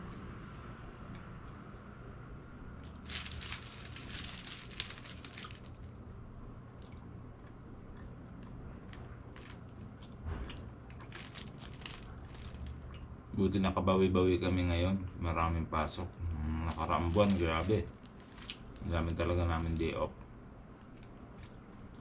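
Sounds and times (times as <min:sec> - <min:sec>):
low steady hum: 0:00.0 - 0:22.0
bread being chewed: 0:02.8 - 0:13.1, 0:16.0 - 0:18.9, 0:20.8 - 0:22.0
plastic bag crinkling: 0:02.9 - 0:06.0, 0:09.3 - 0:09.9, 0:10.5 - 0:12.9, 0:16.3 - 0:20.0, 0:20.8 - 0:22.0.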